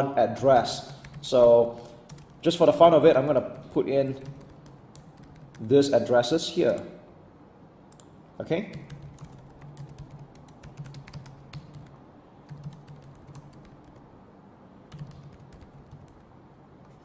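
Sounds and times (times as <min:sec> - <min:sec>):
keyboard typing: 0:00.8 - 0:02.8, 0:03.4 - 0:05.8, 0:08.7 - 0:14.1, 0:14.9 - 0:17.0.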